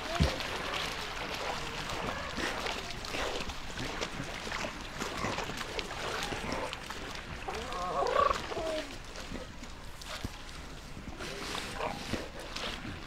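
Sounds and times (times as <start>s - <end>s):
warbling animal call: 7.5s - 8.9s
seal pup snuffling: 11.1s - 13.0s.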